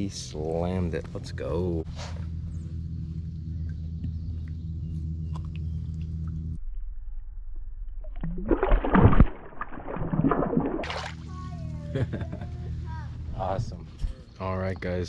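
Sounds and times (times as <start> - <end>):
steady low hum: 0.0 - 15.0
fish splashing in water: 8.0 - 11.3.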